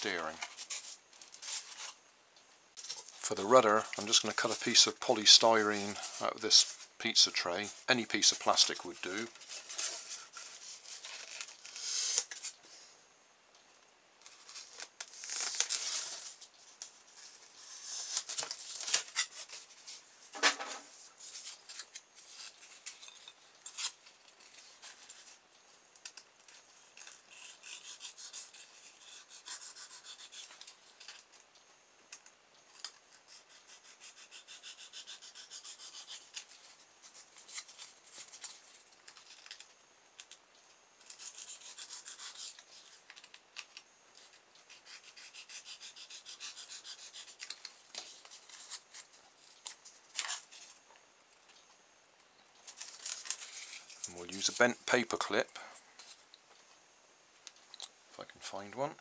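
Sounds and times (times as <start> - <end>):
knife scraping through foam: 27.3 - 30.5, 33.3 - 38.5, 41.2 - 43.0, 44.7 - 47.5.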